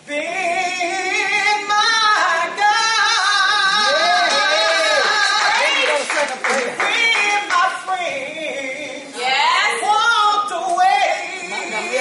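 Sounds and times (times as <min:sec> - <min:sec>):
woman singing with vibrato: 0:00.0 - 0:06.1, 0:06.7 - 0:12.0.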